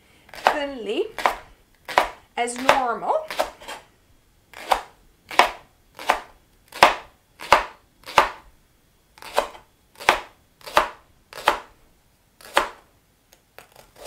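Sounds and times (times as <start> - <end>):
knife slicing on cutting board: 9.2 - 11.6.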